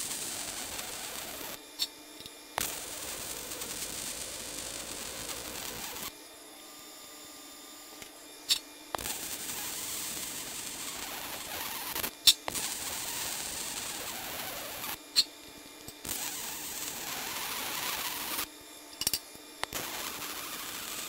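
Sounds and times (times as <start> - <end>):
welding arc hissing: 0.0 - 1.6, 2.6 - 6.1, 8.5 - 15.3, 15.9 - 18.5, 19.6 - 21.0
welding arc pops: 0.0 - 1.9, 2.6 - 6.1, 8.5 - 15.3, 15.9 - 21.0.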